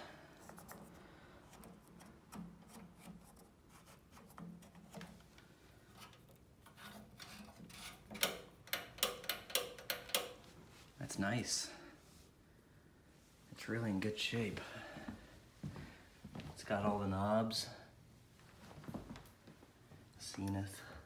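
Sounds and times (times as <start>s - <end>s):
sharp clicks and knocks: 6.0s - 10.5s.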